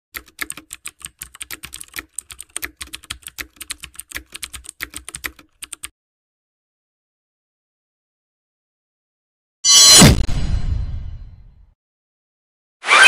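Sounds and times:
rapid keyboard typing: 0:00.1 - 0:05.9.

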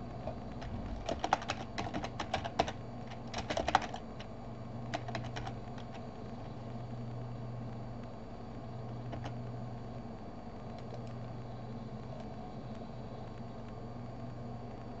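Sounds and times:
computer keyboard typing: 0:00.0 - 0:06.1, 0:08.9 - 0:09.4, 0:10.7 - 0:11.2
steady low hum: 0:00.0 - 0:15.0.

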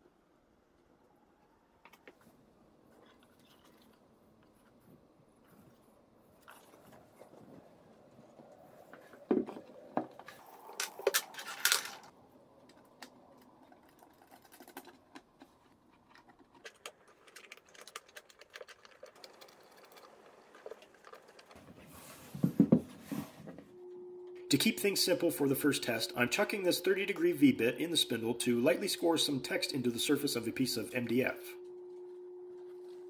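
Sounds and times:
connectors clicking into metal box: 0:10.8 - 0:12.1.

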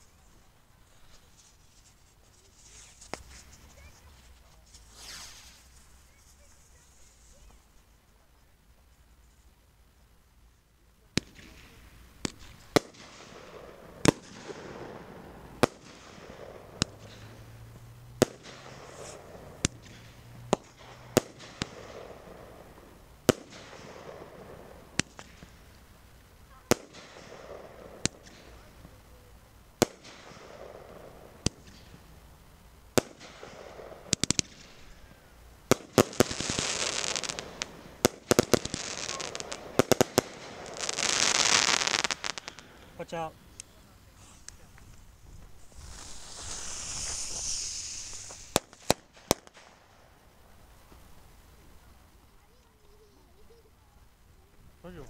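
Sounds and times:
fireworks bangs: 0:00.0 - 0:07.6, 0:11.1 - 0:53.5
rapid fireworks cracks: 0:00.0 - 0:07.8, 0:11.0 - 0:55.0
hiss of sparks: 0:00.8 - 0:07.8, 0:12.2 - 0:25.9, 0:32.9 - 0:50.0.

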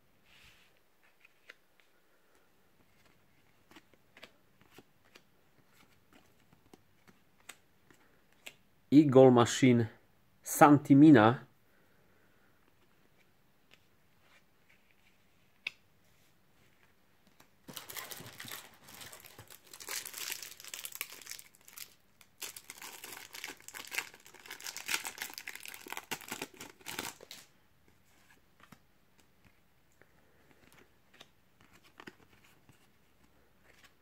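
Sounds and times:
foil wrapper crinkling and tearing: 0:17.7 - 0:27.5.

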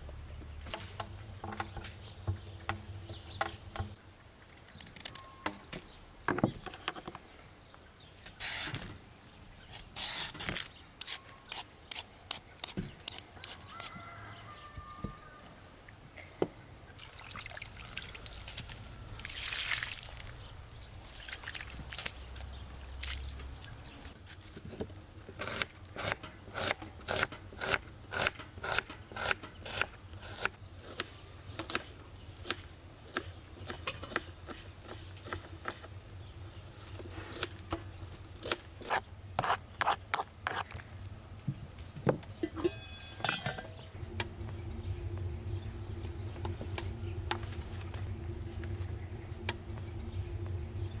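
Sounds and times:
steady low hum: 0:40.8 - 0:51.0.

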